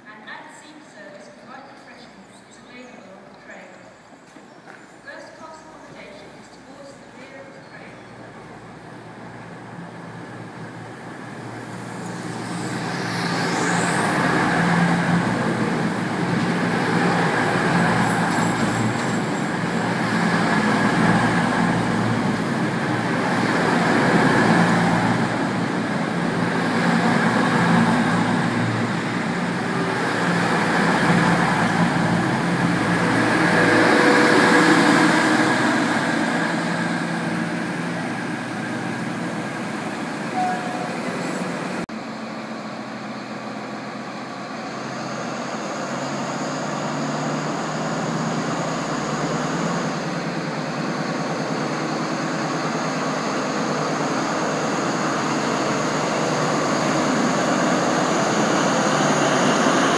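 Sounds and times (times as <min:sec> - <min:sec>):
train diesel engines droning: 0:00.0 - 0:59.9
high whine: 0:11.4 - 0:43.7.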